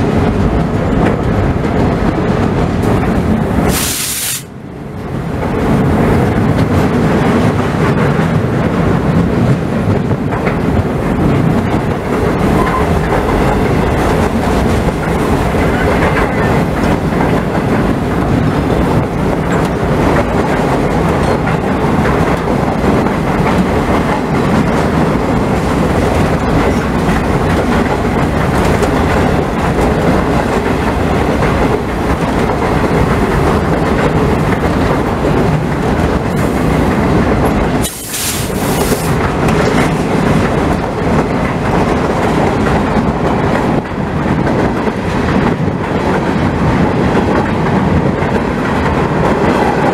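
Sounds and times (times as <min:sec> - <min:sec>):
wheels clattering over rail joints: 0:00.0 - 0:03.9, 0:04.5 - 0:49.9
freight train rumble: 0:00.0 - 0:49.9
short hiss: 0:03.7 - 0:04.5, 0:37.8 - 0:39.1.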